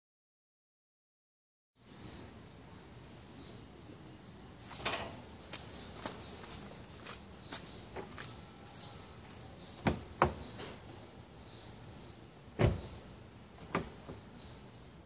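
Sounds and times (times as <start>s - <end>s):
car door latch thump: 12.6s - 13.0s
car door locks clunking: 12.6s - 13.0s.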